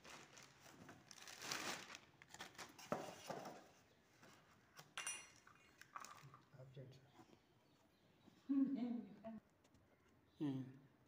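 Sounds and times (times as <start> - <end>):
plastic bag rustling: 0.0 - 2.8.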